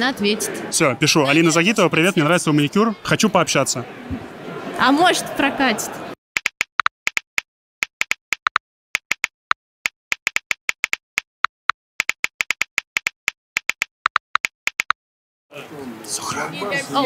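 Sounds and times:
phone keyboard clicks: 6.4 - 15.0.

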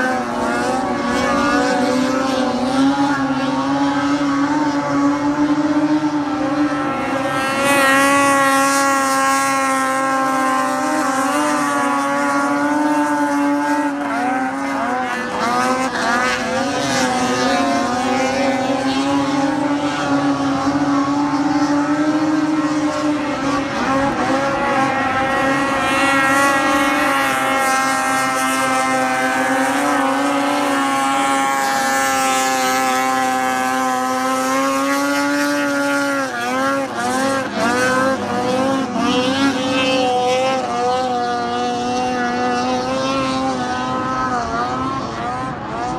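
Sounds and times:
snowmobile engines at full throttle: 0.0 - 45.9.

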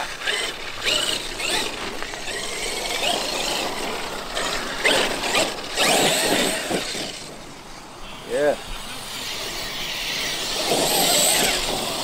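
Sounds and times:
gear and tyre noise: 0.0 - 12.0
electric motor whining: 0.2 - 7.4, 9.2 - 12.0.

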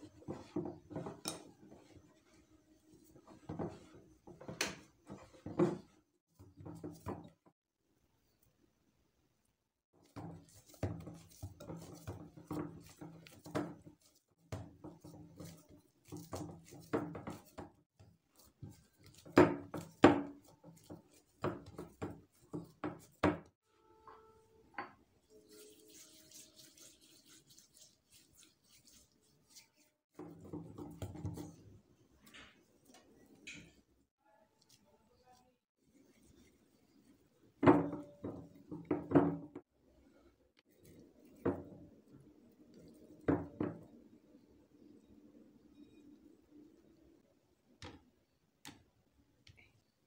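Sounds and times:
dough kneaded in glass bowl: 0.0 - 7.6, 9.9 - 23.6, 24.7 - 33.7.

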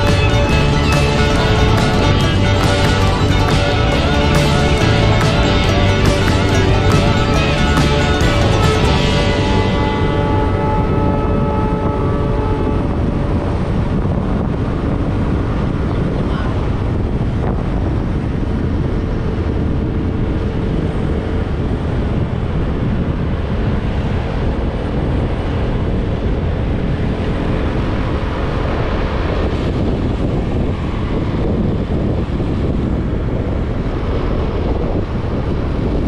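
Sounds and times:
motorcycle road noise: 0.0 - 36.0
wind buffeting the microphone: 8.0 - 36.0.

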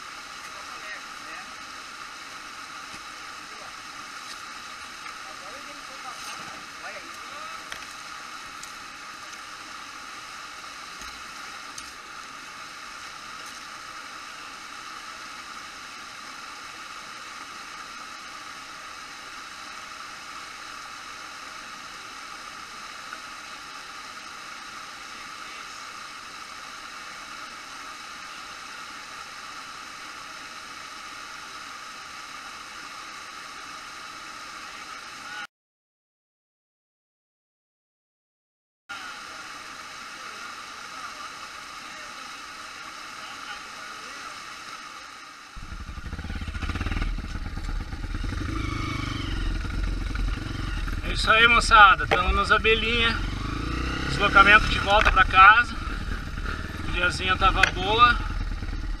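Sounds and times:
waterfall and stream rushing: 0.0 - 35.4, 38.9 - 45.6, 48.5 - 58.2.

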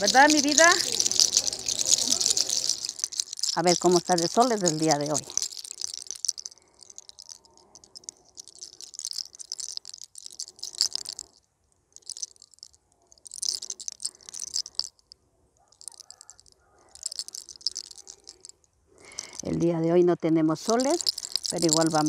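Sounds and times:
fingers rubbing hair: 0.0 - 11.2, 20.7 - 22.0.

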